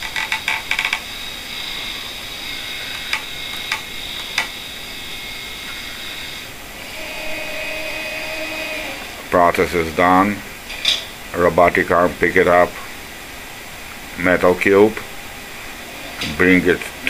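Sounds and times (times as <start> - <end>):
steady high motor whine: 0.0 - 17.0
low motor hum: 1.0 - 10.6
sharp clicks: 2.9 - 4.6.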